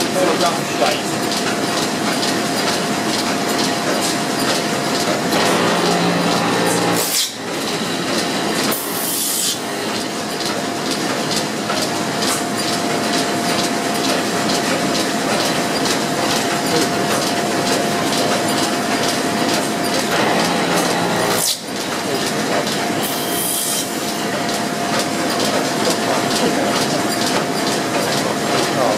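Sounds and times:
machinery clattering and whining: 0.0s - 28.9s
cutters shaving wood hissing: 5.3s - 9.9s, 19.6s - 24.3s.

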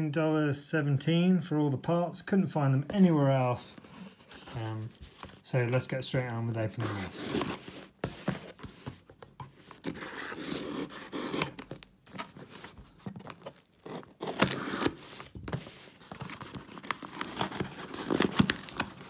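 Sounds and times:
packing tape tearing on cardboard: 9.8s - 19.0s.

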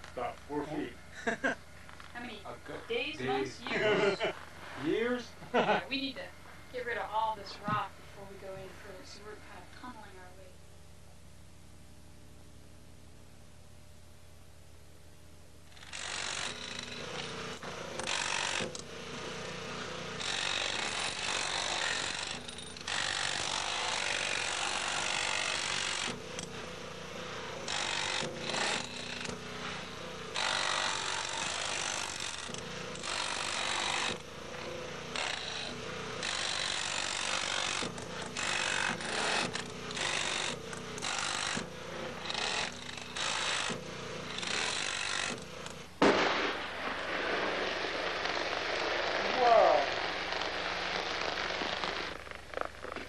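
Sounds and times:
jackhammer cutting into stone: 15.7s - 45.9s.

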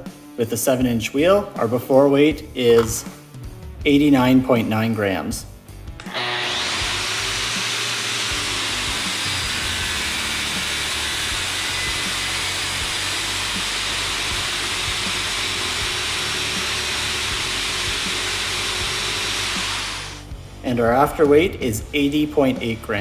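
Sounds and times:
angle grinder grinding steel: 6.0s - 20.2s.

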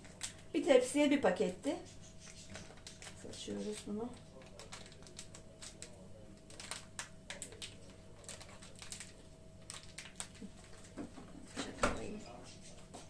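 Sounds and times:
paper sachet ticking and rustling: 0.0s - 0.5s, 2.0s - 11.0s.

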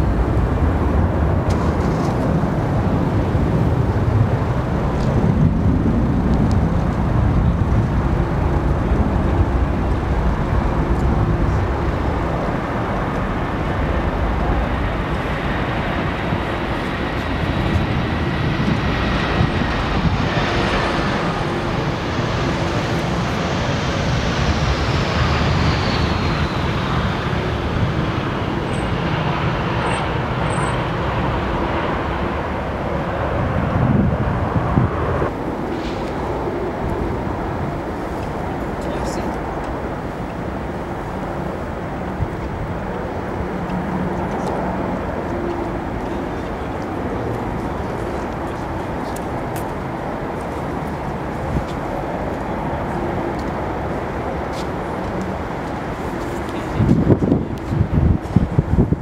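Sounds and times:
jet engine whine falling in pitch: 0.0s - 50.4s
jet rumble: 0.0s - 59.0s.

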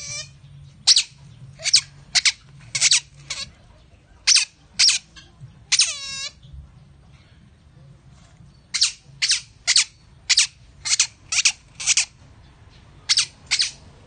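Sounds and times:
otter chirping: 0.0s - 3.6s, 4.2s - 6.5s, 8.7s - 14.0s.

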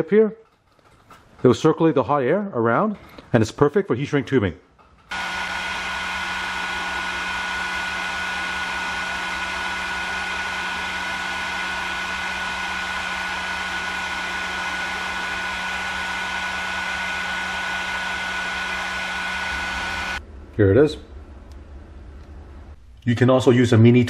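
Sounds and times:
heat gun blowing hot air: 5.1s - 20.2s.

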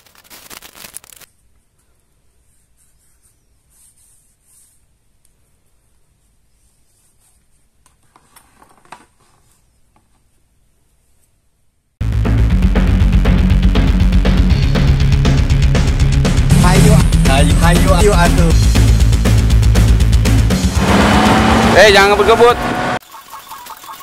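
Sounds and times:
plastic packaging crinkling: 0.0s - 1.3s.

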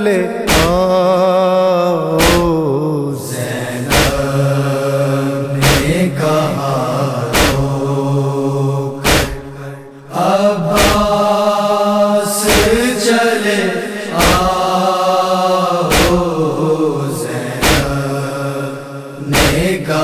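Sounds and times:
voices chanting a lament: 0.0s - 20.0s
palms beating on chests: 0.5s - 0.9s.

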